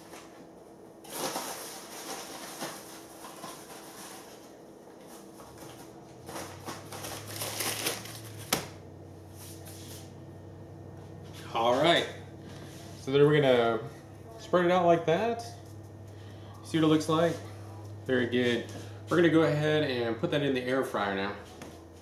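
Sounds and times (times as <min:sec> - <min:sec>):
paper bag rustling: 0:01.0 - 0:08.5.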